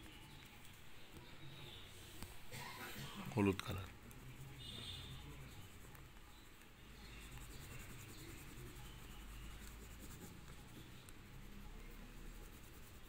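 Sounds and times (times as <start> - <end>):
pastel scratching on paper: 3.4 - 13.0.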